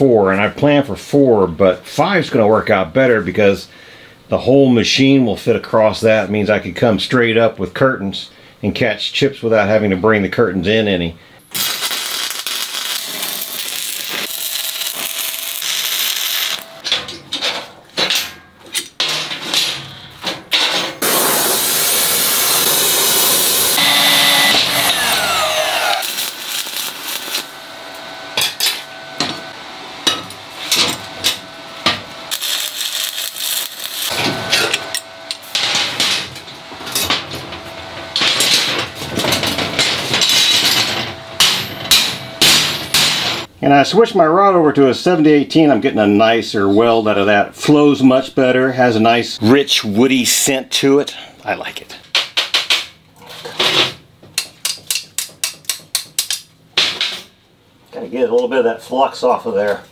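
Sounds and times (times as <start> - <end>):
welding arc crackling: 11.5 - 16.8, 21.0 - 37.0, 39.8 - 43.5
short falling whine: 23.2 - 37.9
chipping hammer tapping metal: 38.1 - 43.5.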